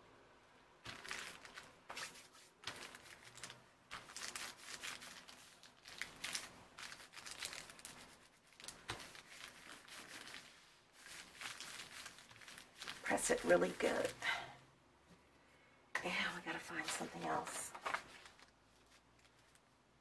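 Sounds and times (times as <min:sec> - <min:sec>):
hands rubbing paper: 0:00.9 - 0:14.1.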